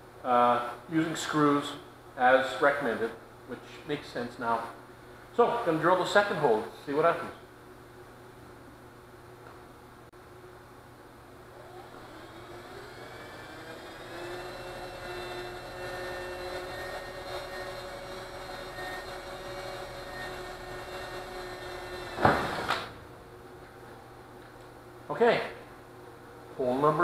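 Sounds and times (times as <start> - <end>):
cordless drill whine: 11.4 - 23.0
loud drill rasp: 11.5 - 22.9.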